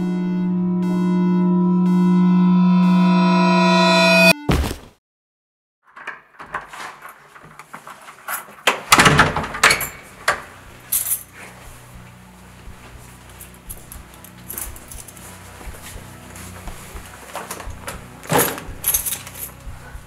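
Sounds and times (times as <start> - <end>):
synth music: 0.0 - 4.5, 10.6 - 20.0
thump: 4.5 - 4.9
keys jangling: 10.8 - 11.4, 13.4 - 15.2, 18.3 - 19.9.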